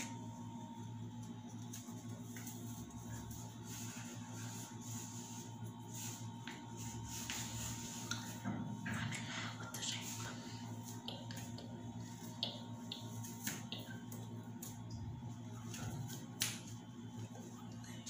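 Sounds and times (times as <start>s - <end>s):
steady low hum: 0.0s - 18.0s
comb and brush through hair: 1.2s - 8.4s.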